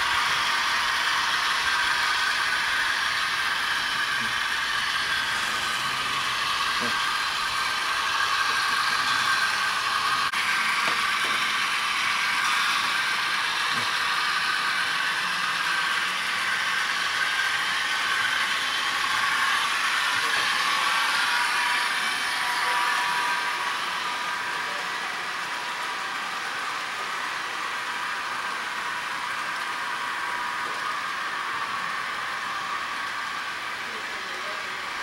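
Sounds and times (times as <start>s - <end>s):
model train whir and clatter: 0.0s - 35.0s.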